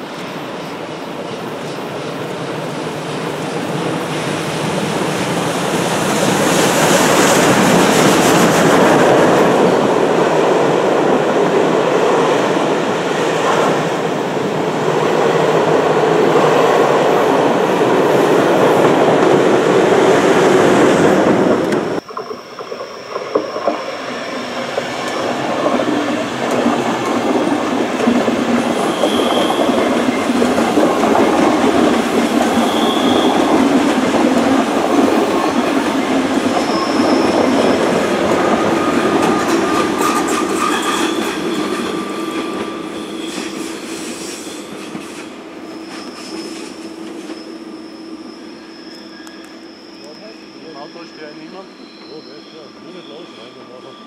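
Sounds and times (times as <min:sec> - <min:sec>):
train wheels clattering over rails: 0:14.8 - 0:47.4
high-pitched wheel squeals: 0:28.6 - 0:30.3, 0:32.1 - 0:33.7, 0:36.5 - 0:54.0.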